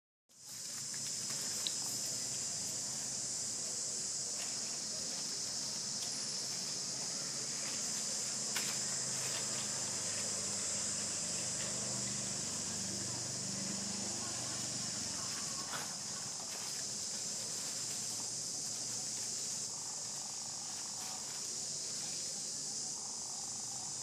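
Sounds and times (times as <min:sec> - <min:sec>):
faint ticks and rustles: 0:00.3 - 0:03.0, 0:13.4 - 0:23.3
high-pitched insect chorus: 0:00.3 - 0:24.0.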